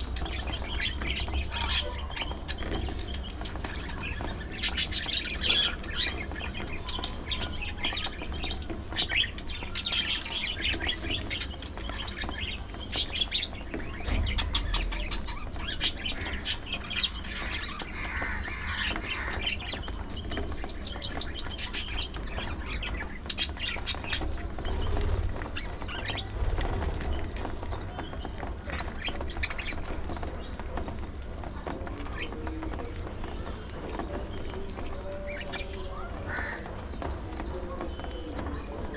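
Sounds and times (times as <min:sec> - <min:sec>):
budgerigars chattering: 0:00.0 - 0:26.3, 0:35.2 - 0:38.9.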